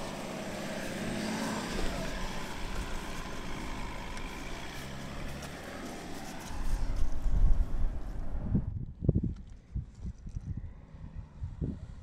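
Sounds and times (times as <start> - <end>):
vehicle engine running under load: 0.0 - 8.5.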